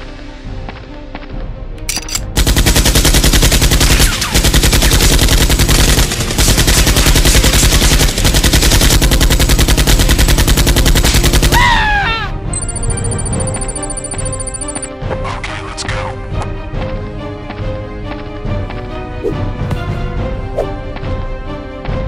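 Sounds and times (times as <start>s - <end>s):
machine-gun fire bursts: 2.3s - 11.8s.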